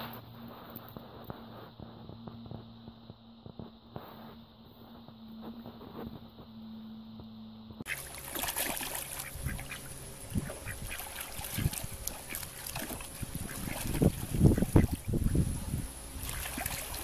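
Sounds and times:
low steady hum: 0.0s - 17.0s
water splashing: 7.9s - 17.0s
duck quacking: 9.0s - 15.4s.

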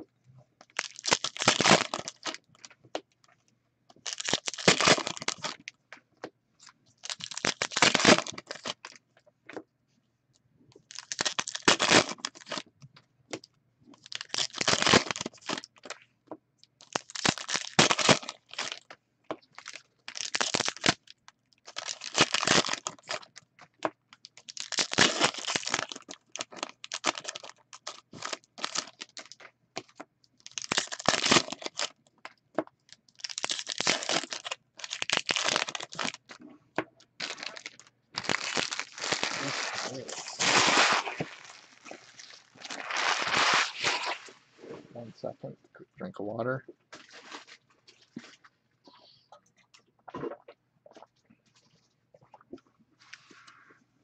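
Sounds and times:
foil wrappers tearing and crinkling: 0.7s - 2.4s, 4.0s - 5.6s, 7.0s - 8.9s, 10.9s - 12.6s, 14.0s - 16.0s, 16.8s - 18.8s, 19.5s - 23.3s, 24.4s - 31.9s, 33.2s - 36.4s, 37.2s - 44.4s.

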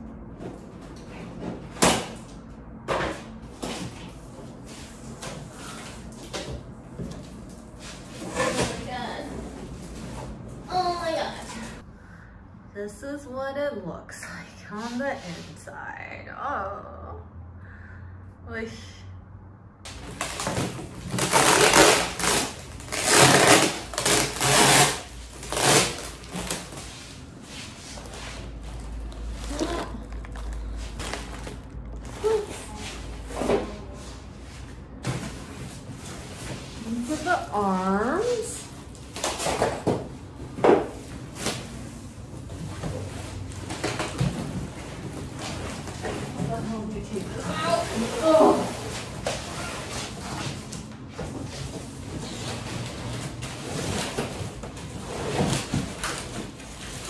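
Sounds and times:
cardboard flaps scraping and rustling: 20.0s - 34.2s, 47.4s - 57.0s.

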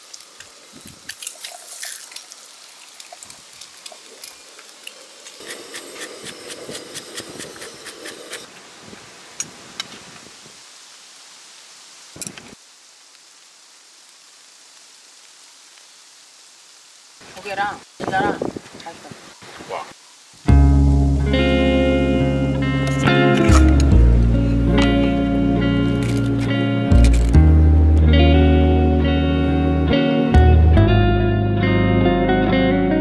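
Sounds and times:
faint steady hiss: 0.0s - 30.7s
egg crackling and spitting in pan: 0.1s - 8.5s.

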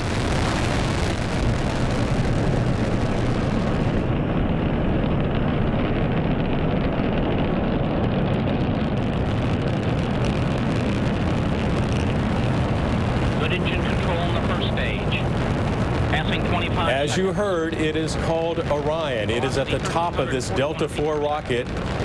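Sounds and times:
rocket engines deep rumble: 0.0s - 22.0s.

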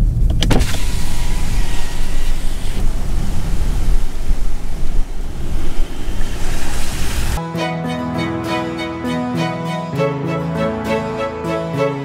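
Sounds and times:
low road rumble: 0.0s - 7.4s
wind buffeting microphone: 0.2s - 7.4s.

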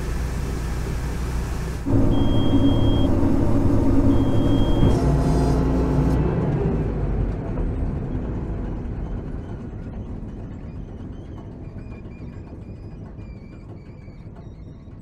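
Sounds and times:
combine harvester engine drone: 0.0s - 13.2s
high beeps: 1.9s - 5.0s.

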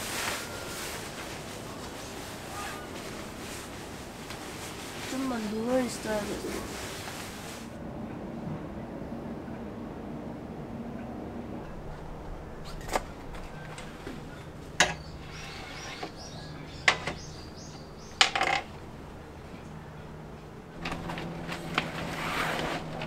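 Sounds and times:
rustling: 0.0s - 7.8s, 20.8s - 23.0s
bird chirping: 12.5s - 18.3s
equipment knocking and clattering: 20.8s - 23.0s.

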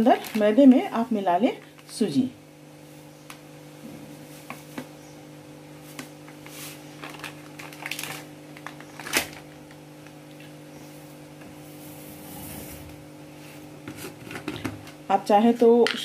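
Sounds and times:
plastic packet rustling: 0.0s - 2.0s, 5.8s - 9.8s.

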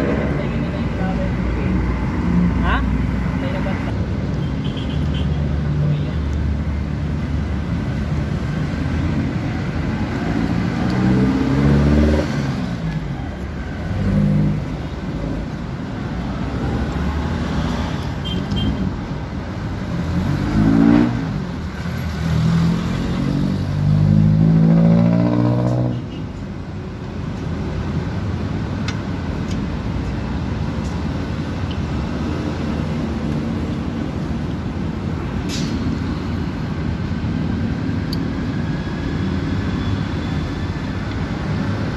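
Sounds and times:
traffic noise: 0.0s - 41.9s
vehicle engines revving past: 8.6s - 13.0s, 13.8s - 15.4s, 19.8s - 26.1s.

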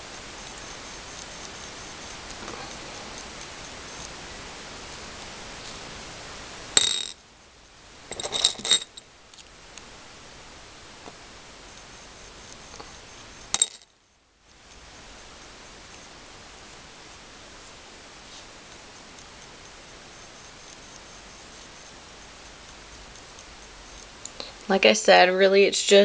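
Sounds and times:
faint steady hiss: 0.0s - 26.0s
glassy bead clinks: 6.8s - 7.2s, 8.1s - 9.0s, 12.8s - 13.9s.

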